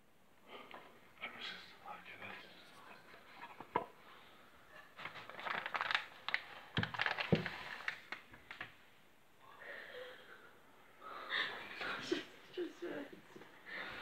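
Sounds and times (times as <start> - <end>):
close rustling and crinkling: 4.9 - 8.6.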